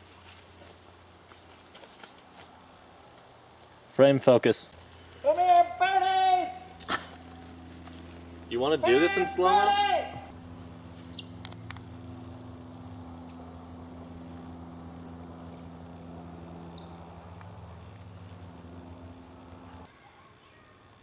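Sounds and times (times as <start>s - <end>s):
low electrical hum: 0.0s - 19.9s
high-pitched bird-like chirps: 11.1s - 16.3s, 17.5s - 19.5s.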